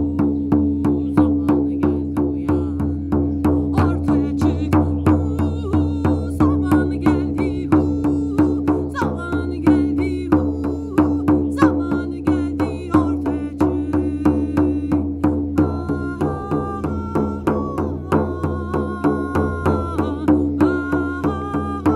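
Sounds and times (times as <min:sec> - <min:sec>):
frame drum beating: 0:00.0 - 0:21.9.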